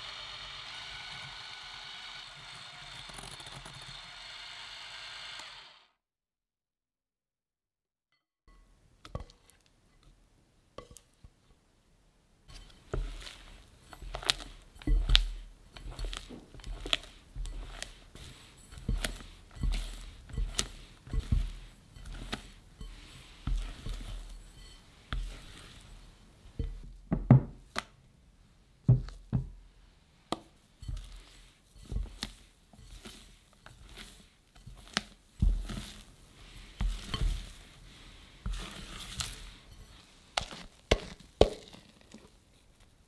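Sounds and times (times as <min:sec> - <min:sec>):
spatula knocking and scraping glass bowl: 0:02.4 - 0:04.0, 0:12.5 - 0:27.5, 0:30.4 - 0:42.4.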